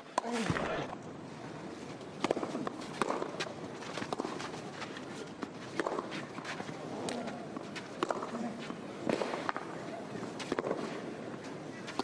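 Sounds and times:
tennis ball struck by racquets: 0:02.2 - 0:04.5, 0:05.7 - 0:06.2, 0:08.0 - 0:08.3.

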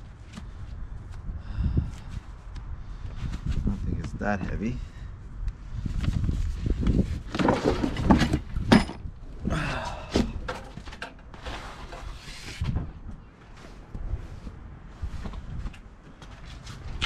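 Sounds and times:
engine block knocks and clunks: 0:07.3 - 0:09.1
cardboard rustling and scraping: 0:11.3 - 0:12.9.

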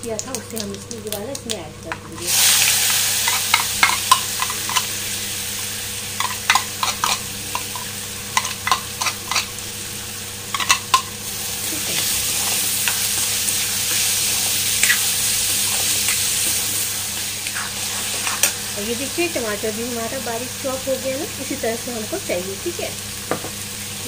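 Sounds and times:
paste sizzling in hot oil: 0:00.0 - 0:24.0.

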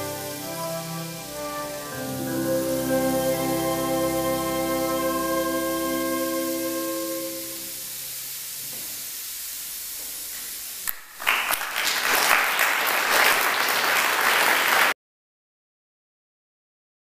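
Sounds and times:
chamber orchestra held notes: 0:00.0 - 0:08.1
audience applause: 0:11.0 - 0:15.0.

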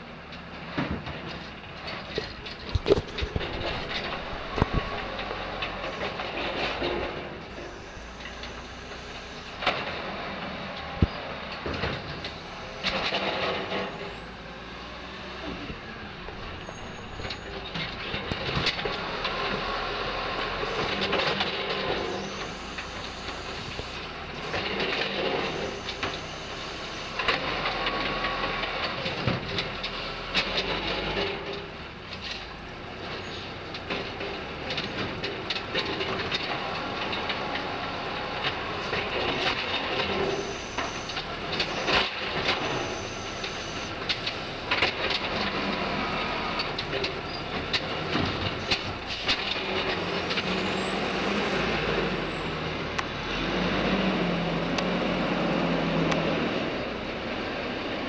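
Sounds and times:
diesel engine running: 0:00.0 - 0:58.0
hydraulic arm clanking: 0:00.9 - 0:14.3.

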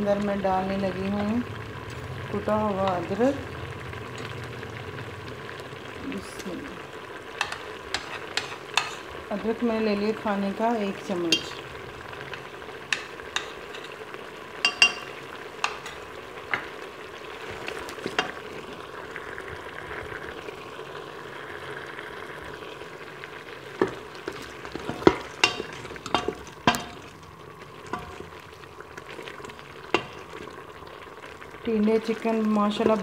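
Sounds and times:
curry sizzling: 0:00.0 - 0:33.0
spoon scraping metal pot: 0:07.4 - 0:09.1, 0:12.9 - 0:14.0, 0:14.6 - 0:16.1, 0:23.8 - 0:27.0.

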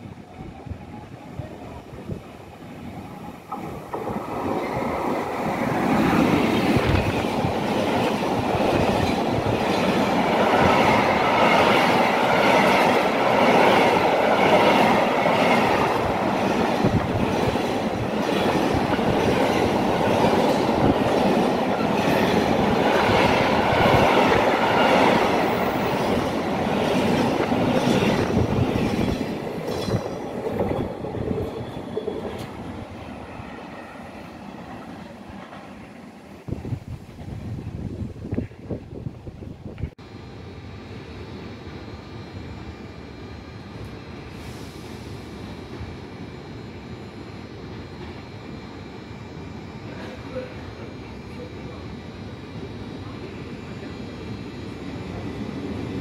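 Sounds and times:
freight train rumbling past: 0:00.0 - 0:56.0.

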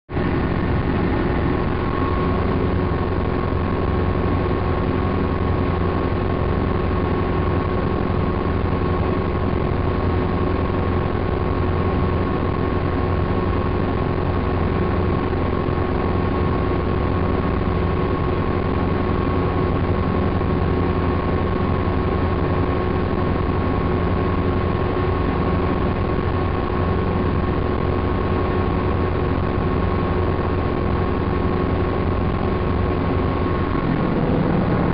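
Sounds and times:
helicopter rotor and engine rumble: 0:00.1 - 0:34.9
whining tones: 0:32.0 - 0:34.9.

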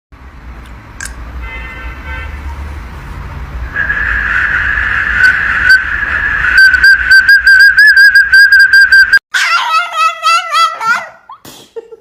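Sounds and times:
plastic toy whistle tooting: 0:06.6 - 0:09.2.

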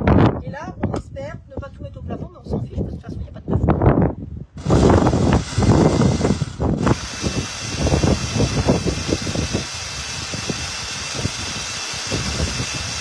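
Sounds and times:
blender running: 0:04.6 - 0:13.0.

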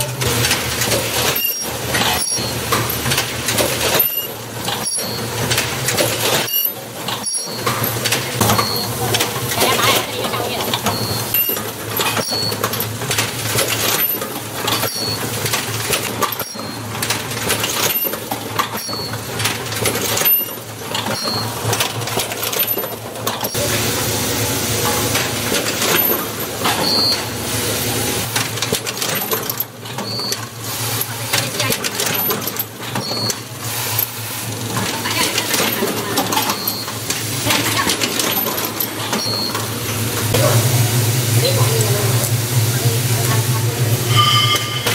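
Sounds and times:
machine clicking and clattering: 0:00.0 - 0:23.6, 0:24.8 - 0:27.3, 0:28.2 - 0:40.4
machine humming: 0:33.4 - 0:44.9
short high-pitched tones: 0:43.9 - 0:44.9.

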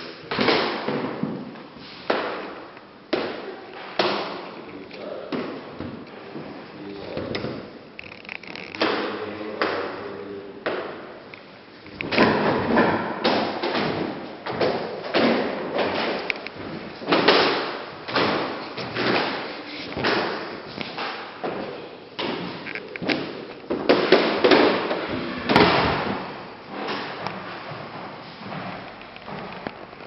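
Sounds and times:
footsteps on hard floor: 0:18.0 - 0:30.0.

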